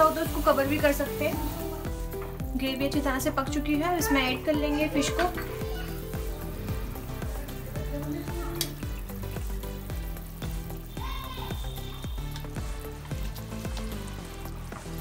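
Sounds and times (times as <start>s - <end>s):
curry simmering and bubbling: 4.7s - 15.0s.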